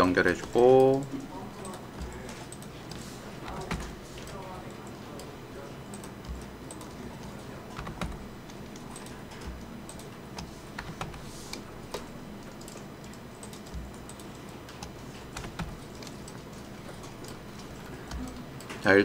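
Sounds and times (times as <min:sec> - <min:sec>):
computer keyboard typing: 0:00.0 - 0:19.0.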